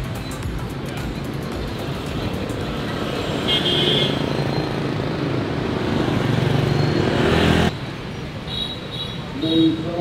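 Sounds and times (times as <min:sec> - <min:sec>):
motor scooters passing: 0:00.7 - 0:08.5.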